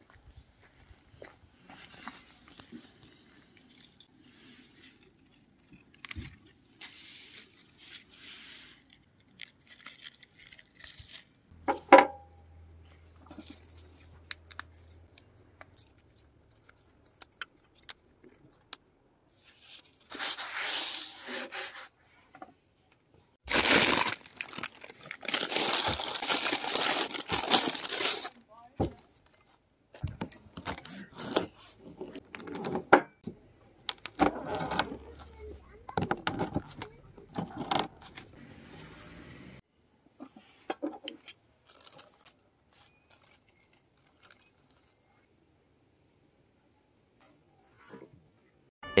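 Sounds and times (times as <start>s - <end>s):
paper bag rustling: 23.4s - 28.4s, 30.2s - 32.8s.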